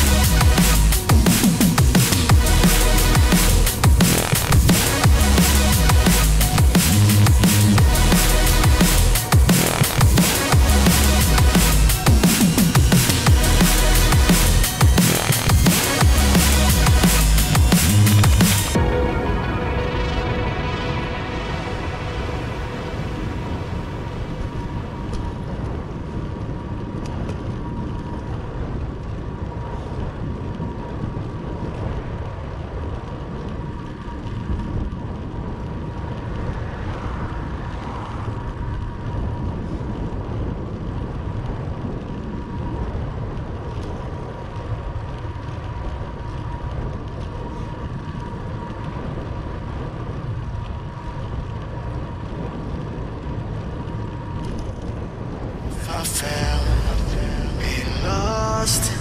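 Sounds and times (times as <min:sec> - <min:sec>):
thin steady whine: 0:00.0 - 0:29.0, 0:41.1 - 0:59.0
bicycle road noise: 0:00.0 - 0:59.0
wind rushing over microphone: 0:00.0 - 0:59.0.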